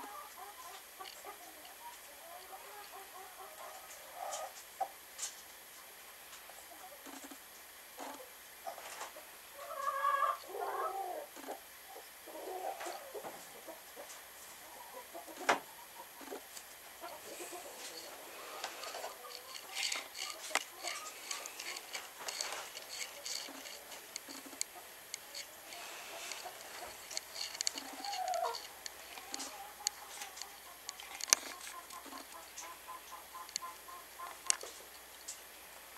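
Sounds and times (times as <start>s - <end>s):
hen clucking softly: 0.0s - 5.0s, 8.0s - 22.0s, 23.1s - 34.8s
straw rustling: 16.2s - 32.7s.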